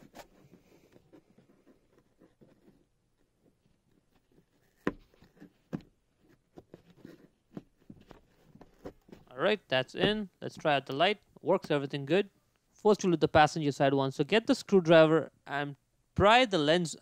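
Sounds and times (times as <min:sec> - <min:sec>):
rustling of gloved fingers: 0:00.0 - 0:11.4.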